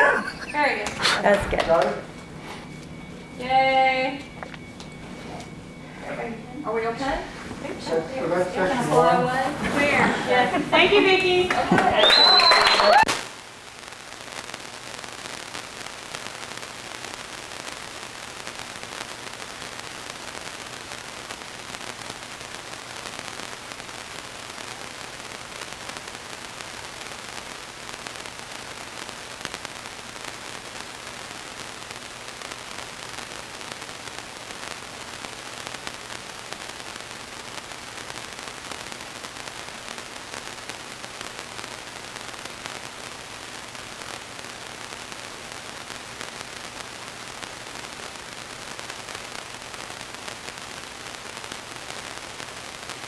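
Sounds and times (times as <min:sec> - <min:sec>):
faint low hum: 0:00.0 - 0:13.1
electronic microphone hiss: 0:00.0 - 0:53.0.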